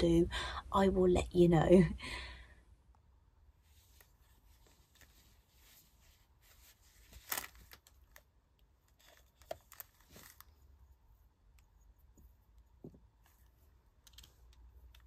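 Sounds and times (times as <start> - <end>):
faint plastic rustles and clicks: 3.6 - 15.0.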